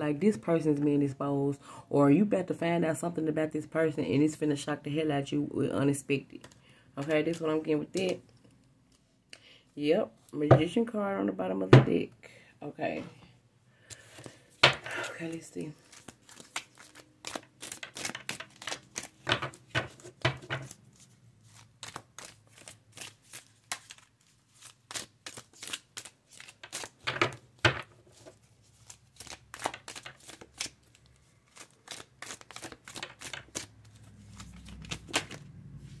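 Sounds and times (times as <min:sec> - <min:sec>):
cards being shuffled: 0:13.9 - 0:36.0.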